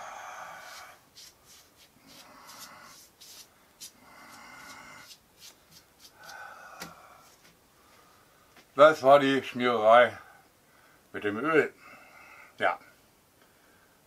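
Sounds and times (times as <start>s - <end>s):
sponge brush rubbing on wood: 0.6s - 6.4s.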